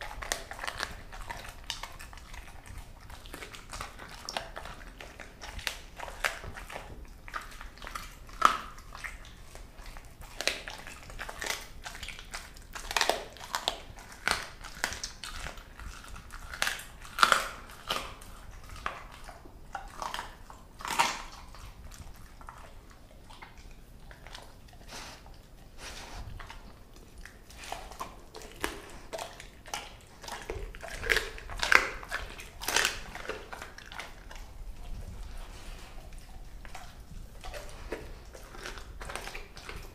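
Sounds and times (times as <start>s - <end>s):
dog chewing bones: 0.0s - 39.9s
bones cracking: 26.4s - 35.3s.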